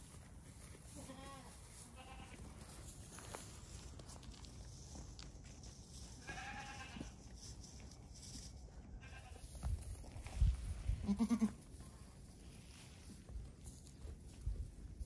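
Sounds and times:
goats bleating: 1.0s - 2.4s, 6.2s - 7.2s, 9.0s - 9.5s, 11.0s - 11.7s.

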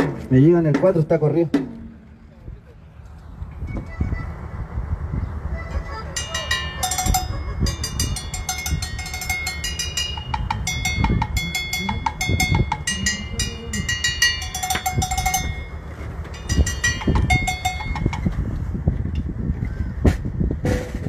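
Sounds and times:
cowbell struck in rhythm: 6.2s - 15.8s, 16.4s - 18.3s.

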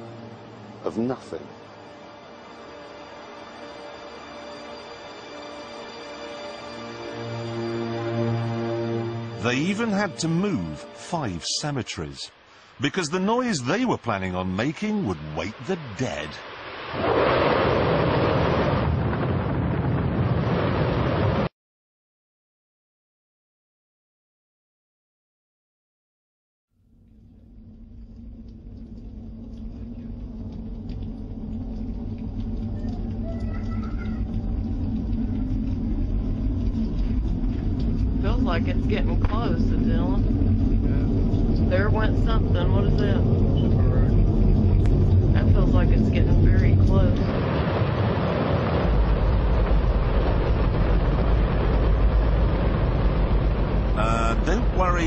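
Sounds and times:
deep rumbling drone: 0.0s - 11.7s, 26.8s - 55.0s
rocket engine roaring: 12.8s - 21.5s, 27.4s - 55.0s.

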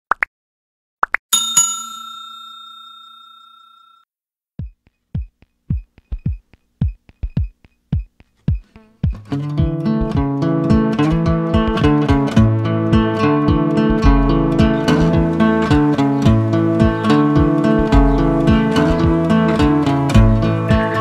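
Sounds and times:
bell ding: 1.4s - 4.1s
drum machine kicks: 4.6s - 21.0s
strummed guitar chords: 8.8s - 21.0s.

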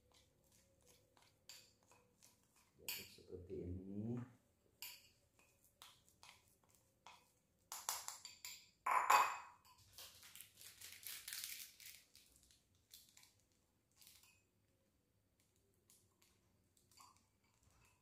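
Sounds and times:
metal spoon clinking glass bowl: 2.9s - 3.2s, 7.8s - 9.8s.

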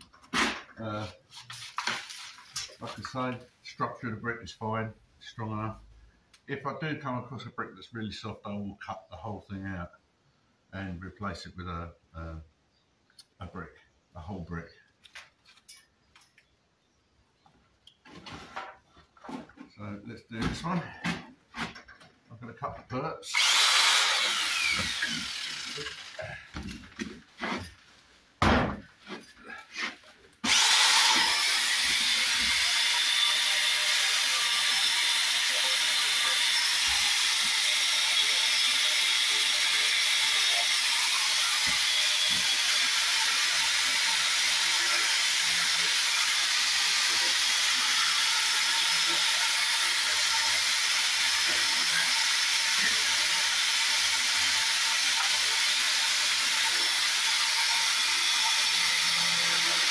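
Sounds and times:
power saw grinding brick: 23.3s - 27.7s, 29.1s - 59.9s.

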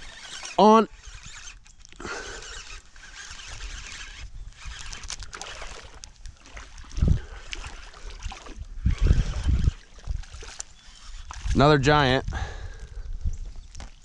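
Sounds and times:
wind buffeting microphone: 6.3s - 14.0s.

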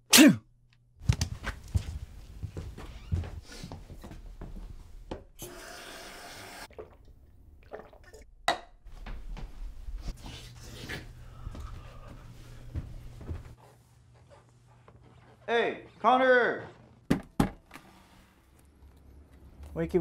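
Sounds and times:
water running from a tap: 5.4s - 6.7s.

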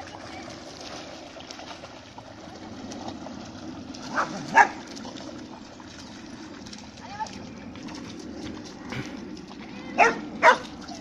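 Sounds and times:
shallow river water rushing: 0.0s - 11.0s
water splashing: 0.0s - 11.0s
dog barking: 4.1s - 4.8s, 10.0s - 10.7s.

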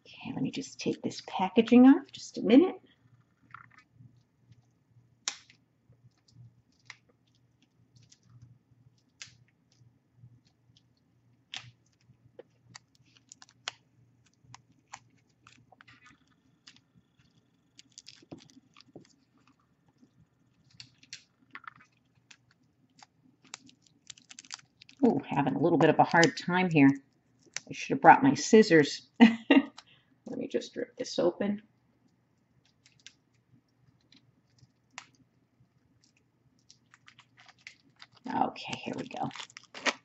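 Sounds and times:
wrapping crinkling rustles: 5.4s - 27.8s, 32.0s - 40.0s.

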